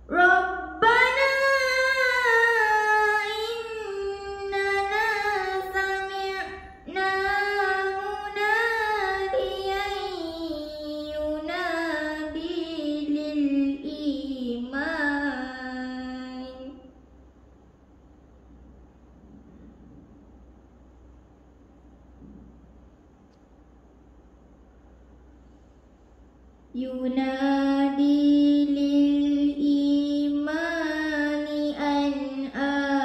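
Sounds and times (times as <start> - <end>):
girl reciting melodically: 0.0 - 17.0, 26.6 - 33.0.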